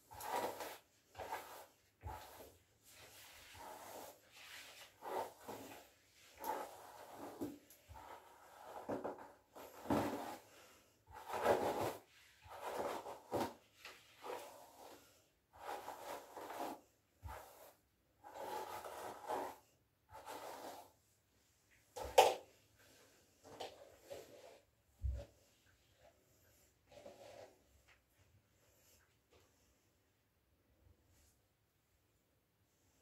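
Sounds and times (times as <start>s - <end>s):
brush rubbing through hair: 0.0s - 21.0s.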